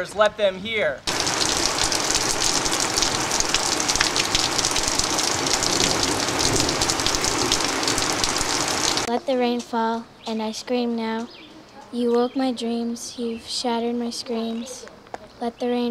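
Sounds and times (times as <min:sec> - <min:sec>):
rain on leaves and wood: 0:01.1 - 0:09.1.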